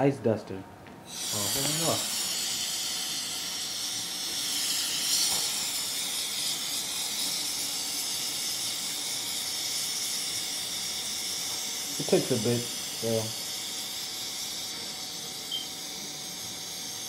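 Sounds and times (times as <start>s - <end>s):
compressed air spraying into water: 1.1s - 17.0s.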